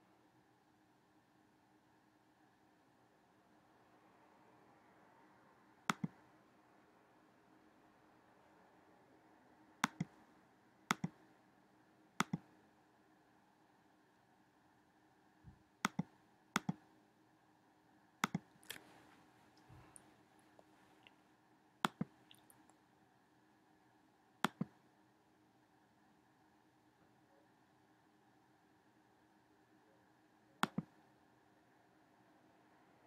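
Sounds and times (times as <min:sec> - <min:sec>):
faint steady hum: 0:00.0 - 0:33.0
computer mouse clicks: 0:05.9 - 0:06.2, 0:09.8 - 0:10.2, 0:10.9 - 0:11.2, 0:12.2 - 0:12.5, 0:15.8 - 0:16.9, 0:18.2 - 0:18.8, 0:21.8 - 0:22.5, 0:24.4 - 0:24.8, 0:30.6 - 0:31.0.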